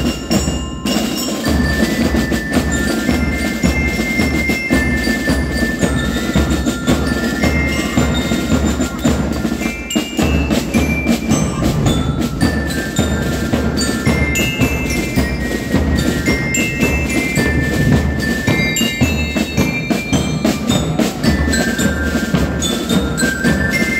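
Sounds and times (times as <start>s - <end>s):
bell lyres playing melody: 0.0s - 23.9s
steady low drum beat: 0.0s - 23.9s
rapid drum hits: 5.6s - 23.0s.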